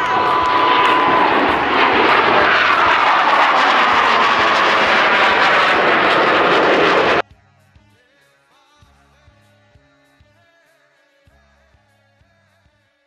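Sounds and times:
jet roaring past: 0:00.0 - 0:07.2.

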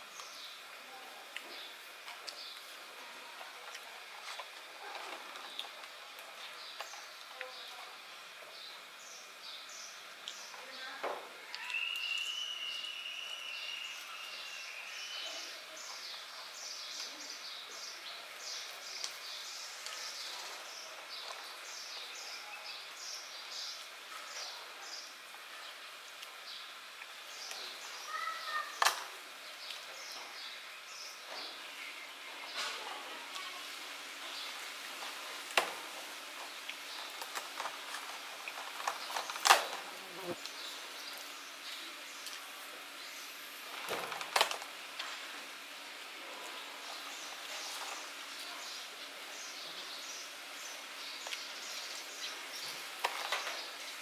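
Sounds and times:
steady background hiss: 0:00.0 - 0:54.0
thin steady whistle: 0:11.6 - 0:15.2.

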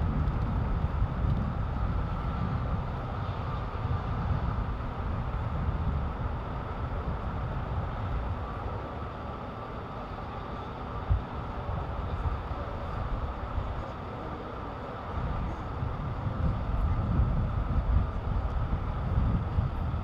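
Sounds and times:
low street rumble: 0:00.0 - 0:20.0.

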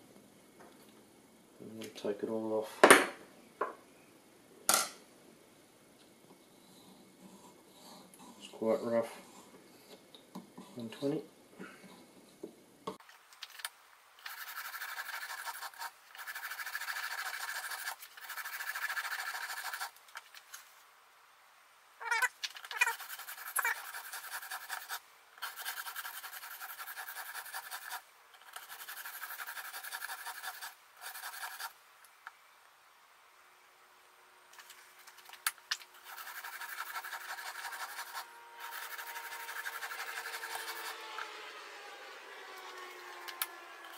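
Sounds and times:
sharpening stone scraping knife: 0:22.2 - 0:28.0, 0:36.0 - 0:40.8.

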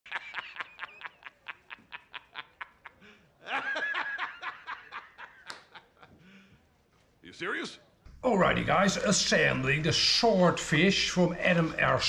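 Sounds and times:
person laughing: 0:00.1 - 0:06.2.

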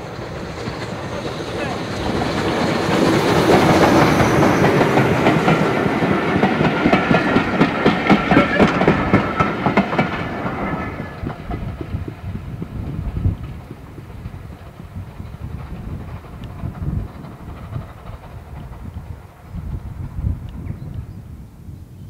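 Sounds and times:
wheels clicking over rail joints: 0:00.0 - 0:19.4
train passing: 0:00.0 - 0:21.4.

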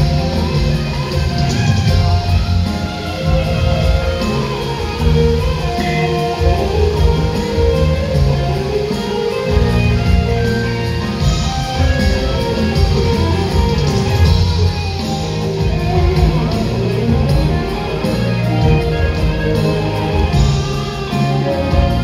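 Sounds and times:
loud show music with heavy bass: 0:00.0 - 0:22.0.

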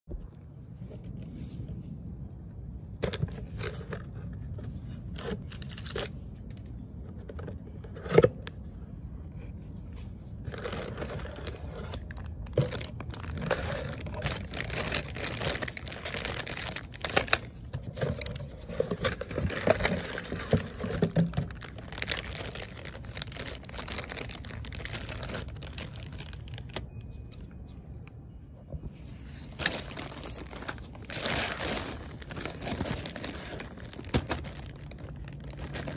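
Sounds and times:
plastic bags crinkling: 0:10.4 - 0:27.1, 0:29.4 - 0:35.9.

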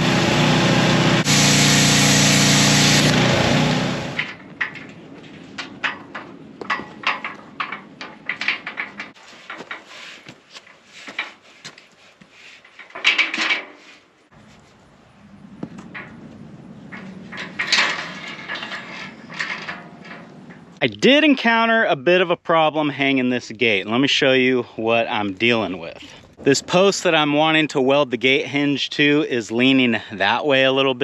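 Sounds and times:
steel parts clanking: 0:01.3 - 0:11.4, 0:12.6 - 0:14.1, 0:16.8 - 0:20.8.

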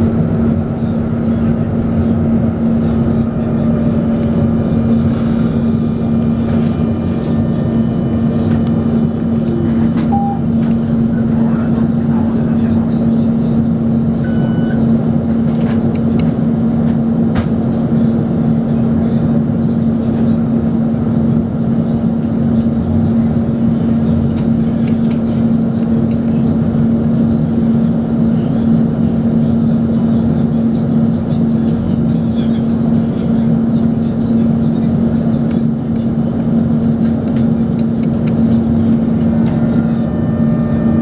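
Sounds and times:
tram interior hum: 0:00.0 - 0:41.0
short high beep: 0:10.1 - 0:10.5, 0:14.2 - 0:14.8.

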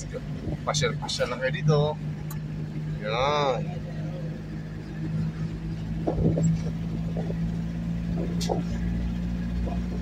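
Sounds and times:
vehicle engine and road hum: 0:00.0 - 0:10.0.

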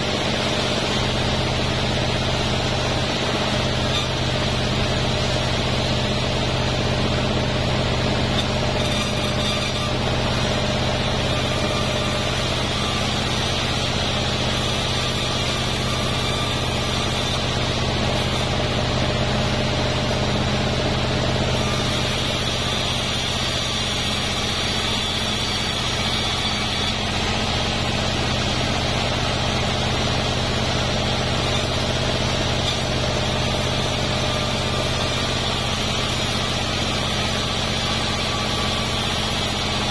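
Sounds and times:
sawmill machine hum: 0:00.0 - 0:39.9
saw blade ripping through wood: 0:07.5 - 0:19.5, 0:21.5 - 0:39.9.

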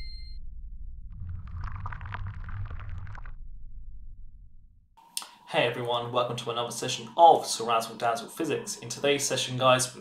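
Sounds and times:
low rumble: 0:00.0 - 0:05.0.

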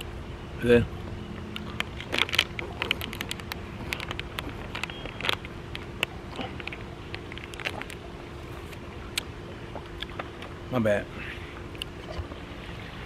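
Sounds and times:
steady low hum: 0:00.0 - 0:13.0
plastic sleeve crinkling: 0:01.6 - 0:08.0.

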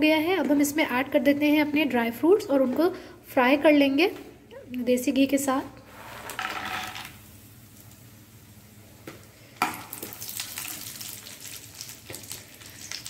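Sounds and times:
hot fat sizzling in a pan: 0:09.6 - 0:13.0.

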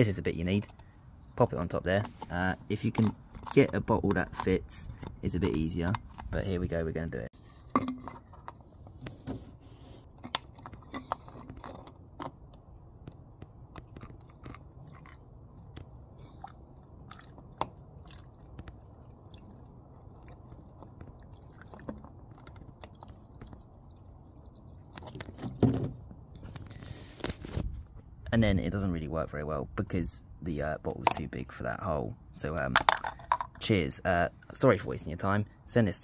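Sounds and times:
plastic bottles clicking and crinkling: 0:01.6 - 0:07.0, 0:07.6 - 0:09.2, 0:10.1 - 0:12.7, 0:20.3 - 0:27.5, 0:32.7 - 0:33.7
liquid pouring into bottle: 0:16.3 - 0:25.3.

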